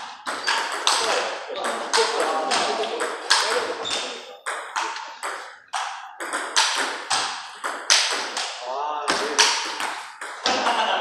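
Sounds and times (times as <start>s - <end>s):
table tennis ball clicking: 0.3s - 8.5s.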